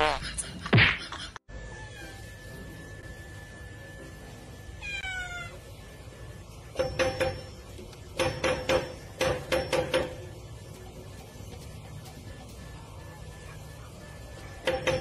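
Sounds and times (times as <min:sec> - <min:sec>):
cat meowing: 0:04.8 - 0:05.6.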